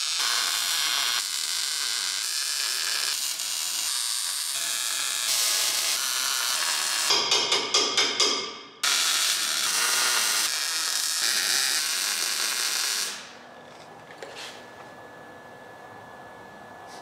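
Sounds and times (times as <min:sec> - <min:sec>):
welder arc crackling: 0:00.0 - 0:07.1, 0:08.8 - 0:13.4.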